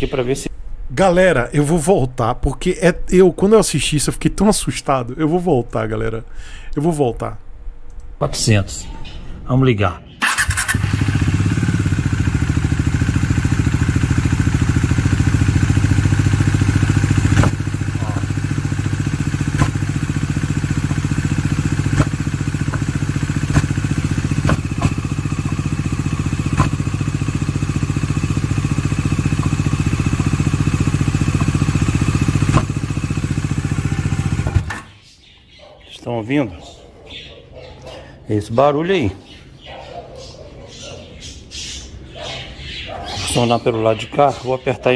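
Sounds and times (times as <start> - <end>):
motorcycle engine idling: 10.2 - 34.7
sharp engine knocks: 17.2 - 17.6, 19.5 - 20.0, 21.9 - 25.6, 26.5 - 26.8, 32.4 - 32.8.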